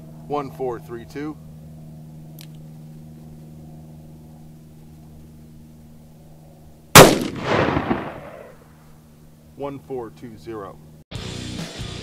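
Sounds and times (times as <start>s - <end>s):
revolver gunshot with echo: 7.0s - 8.8s.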